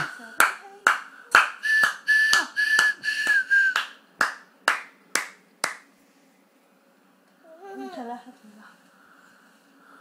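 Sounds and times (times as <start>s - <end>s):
hands clapping a steady beat: 0.0s - 5.9s
person whistling held notes: 1.6s - 3.9s.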